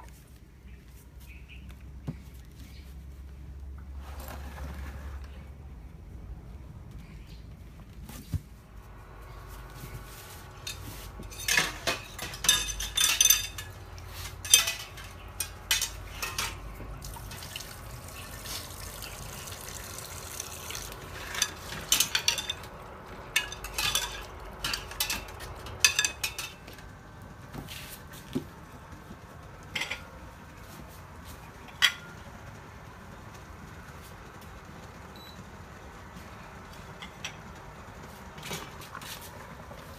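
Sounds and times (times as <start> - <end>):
utensils clinking against dishes: 10.6 - 17.4, 20.7 - 26.8, 29.7 - 30.1.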